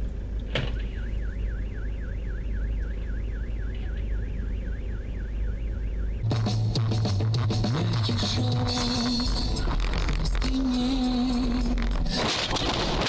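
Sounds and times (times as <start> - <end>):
low vehicle rumble: 0.0 - 13.0
car alarm warbling: 0.6 - 6.8.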